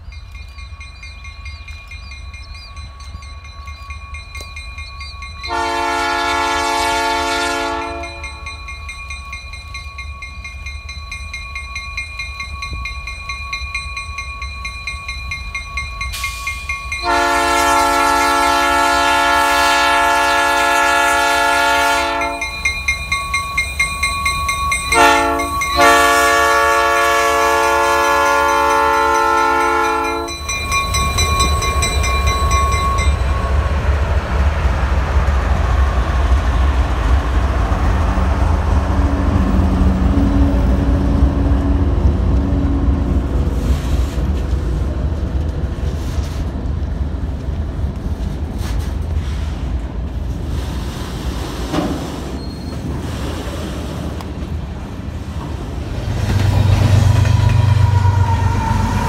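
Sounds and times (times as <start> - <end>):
locomotive bell ringing: 0.0 - 34.6
train rumbling past on rails: 0.0 - 59.0
locomotive air horn: 5.5 - 8.4, 17.0 - 22.5, 24.9 - 30.4, 57.0 - 59.0.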